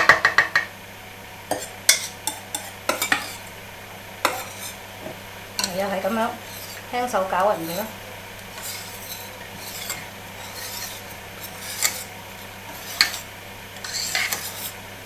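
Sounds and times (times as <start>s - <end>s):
whisk scraping metal bowl: 1.5s - 3.5s, 4.2s - 4.8s, 5.6s - 14.8s.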